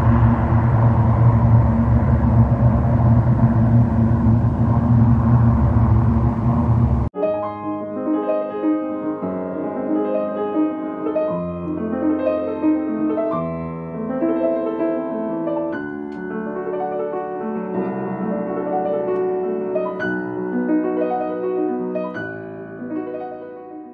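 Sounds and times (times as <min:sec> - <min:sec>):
light aircraft engine rumble: 0:00.0 - 0:07.1
gentle piano music: 0:07.1 - 0:23.9.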